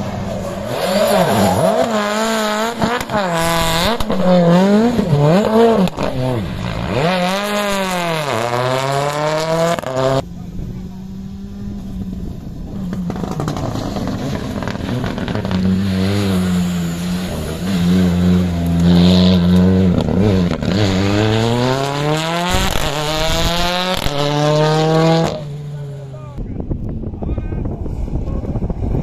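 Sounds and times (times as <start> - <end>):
car engine at high revs passing: 0.0 - 26.4.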